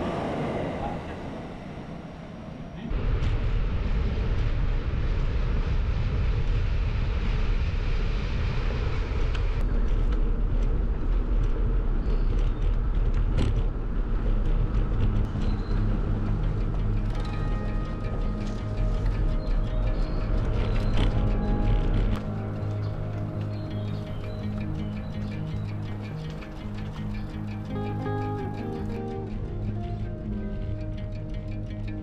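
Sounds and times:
wind and road noise: 0.0 - 32.0
music: 14.4 - 32.0.

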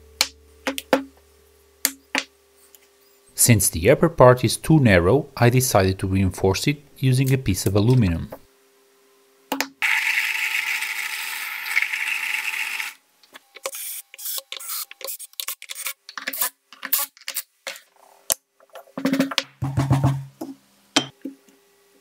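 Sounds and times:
drill driving a screw: 13.6 - 17.0.

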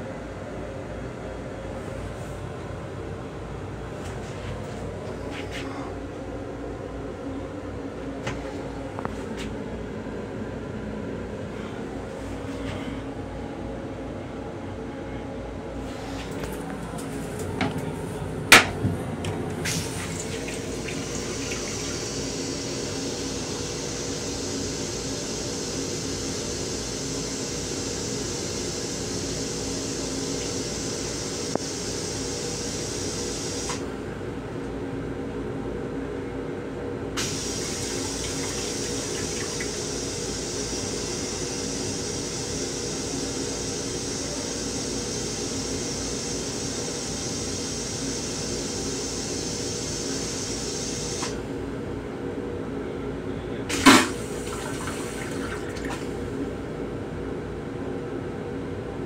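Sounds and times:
railcar hum: 0.0 - 59.0
toilet flush click: 18.5 - 27.8, 29.8 - 32.0, 32.6 - 33.9, 37.2 - 42.8, 49.1 - 51.4, 53.7 - 56.2
water running into toilet bowl: 19.5 - 33.7, 37.2 - 46.3, 53.7 - 56.2.

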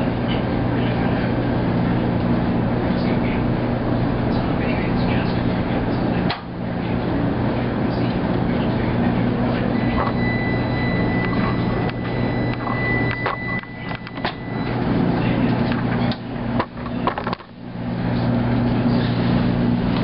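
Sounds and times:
washing machine humming: 0.0 - 20.0
thin high tone: 9.7 - 14.8.

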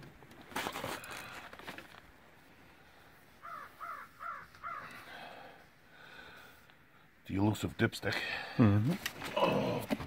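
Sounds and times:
handling rustle: 0.0 - 2.5
crow cawing: 3.4 - 5.5.

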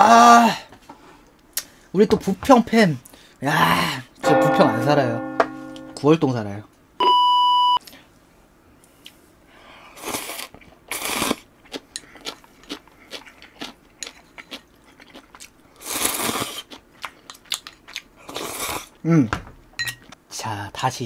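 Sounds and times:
short electronic beep: 7.0 - 7.8
chewing and crunching: 10.2 - 19.0.

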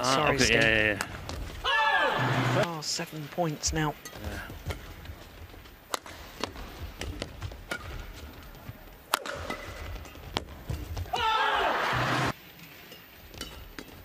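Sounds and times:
racket striking shuttlecock: 5.9 - 8.4, 9.1 - 10.8
person shouting: 11.1 - 11.8.

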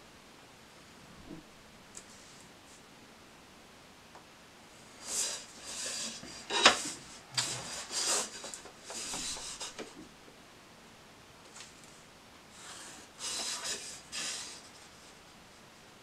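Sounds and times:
ruler sliding over paper: 5.0 - 9.9, 12.6 - 15.1.

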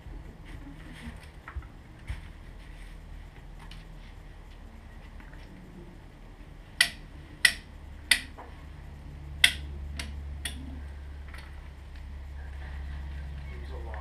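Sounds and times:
low steady hum: 0.0 - 14.0
metallic clicks of hand tools: 6.8 - 8.3, 9.4 - 10.6.

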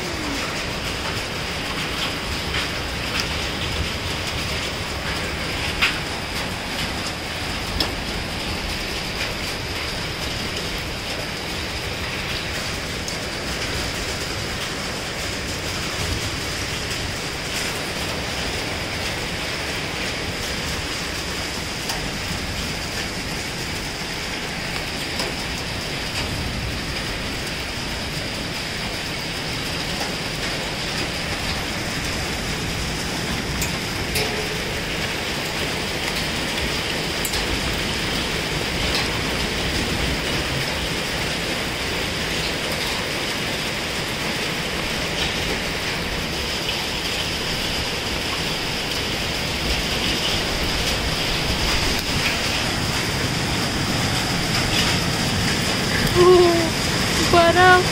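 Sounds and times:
hail ticking: 0.0 - 57.9
heavy rain hissing: 0.0 - 57.9.

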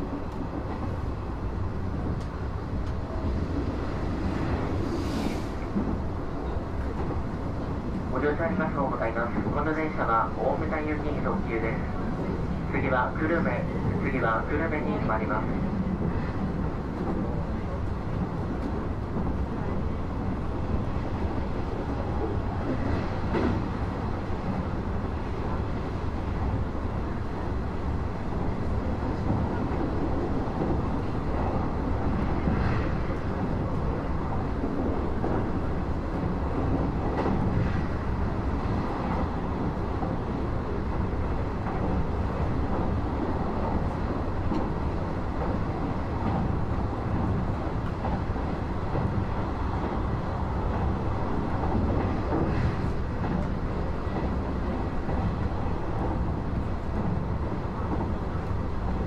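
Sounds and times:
train wheels rumbling on track: 0.0 - 59.0.

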